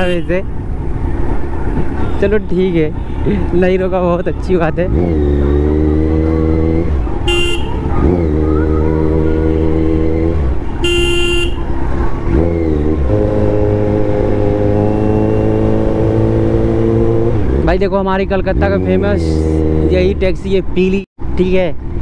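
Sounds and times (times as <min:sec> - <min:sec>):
vehicle horn honks: 0:07.2 - 0:07.9, 0:10.6 - 0:11.6.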